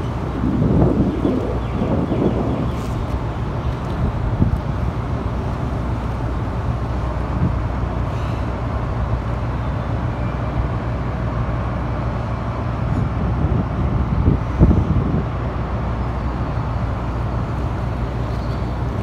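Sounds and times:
low engine drone: 0.0s - 19.0s.

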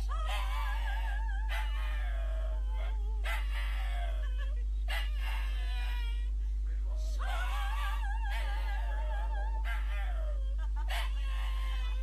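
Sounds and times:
dog howling: 0.0s - 6.3s, 7.2s - 12.0s
steady low hum: 0.0s - 12.0s.

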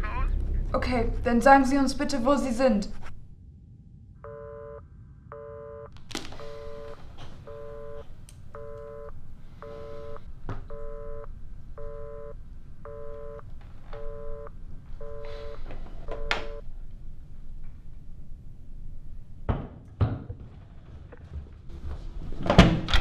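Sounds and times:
telephone busy tone: 4.2s - 16.6s
sharp clicks on phone line: 16.1s - 16.6s.

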